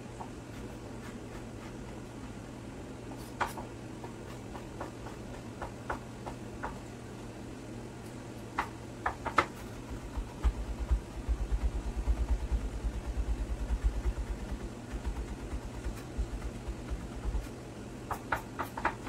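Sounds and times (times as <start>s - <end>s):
knife chopping on wooden board: 3.3s - 6.8s, 8.6s - 19.0s.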